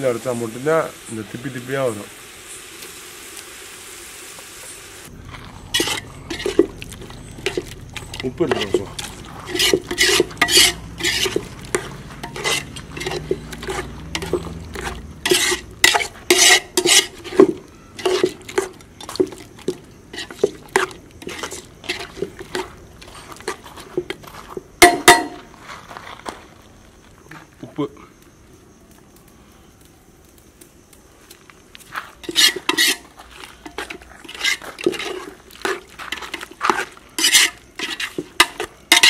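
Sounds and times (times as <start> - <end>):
metal spoon scraping a pot: 5.3 - 24.2, 32.2 - 39.0
loud metal clank: 24.8 - 25.4.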